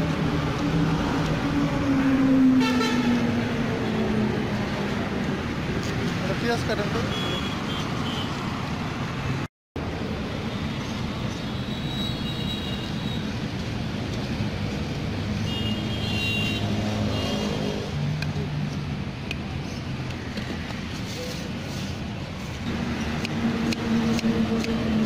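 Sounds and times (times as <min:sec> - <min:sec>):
street traffic noise: 0:00.0 - 0:25.0.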